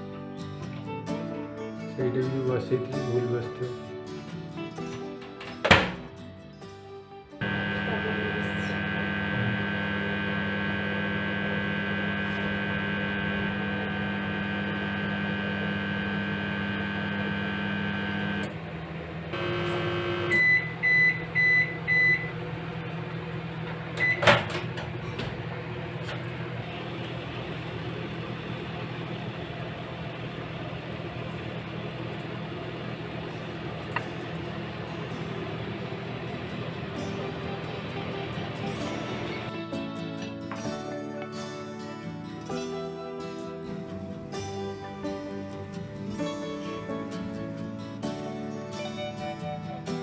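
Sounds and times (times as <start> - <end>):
microwave oven humming: 7.4 - 50.0
short beeps: 19.4 - 22.3.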